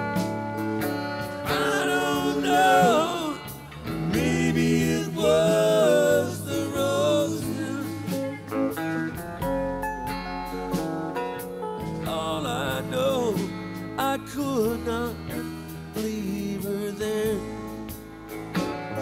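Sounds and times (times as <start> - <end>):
lead guitar with bending notes: 0.0 - 14.0
bass guitar: 0.0 - 19.0
strummed guitar: 0.0 - 19.0.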